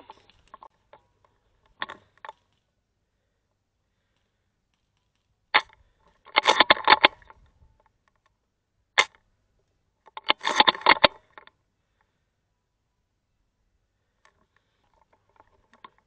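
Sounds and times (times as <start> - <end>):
rifle bolt rattling clicks: 10.1 - 11.5.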